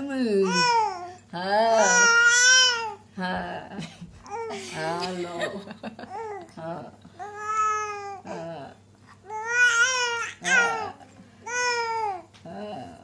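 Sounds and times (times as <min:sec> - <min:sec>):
baby cooing and babbling: 0:00.4 - 0:01.1, 0:01.7 - 0:03.0, 0:07.2 - 0:08.5, 0:09.2 - 0:12.3.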